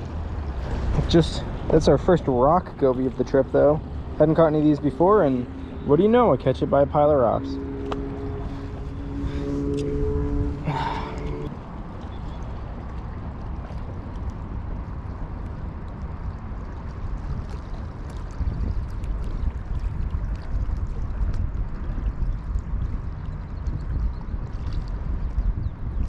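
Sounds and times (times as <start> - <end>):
waves lapping against rocks: 0.0 - 26.0
wind noise on microphone: 7.3 - 26.0.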